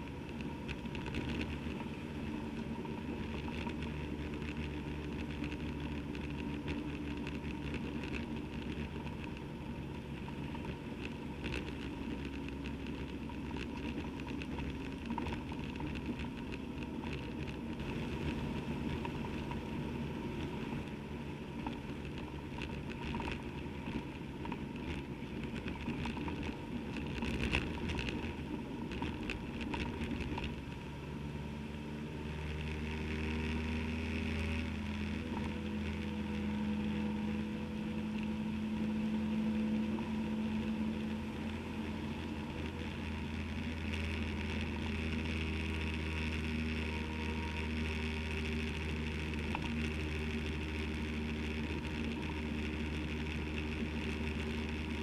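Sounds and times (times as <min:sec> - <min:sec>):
motorcycle engine running: 0:00.0 - 0:55.0.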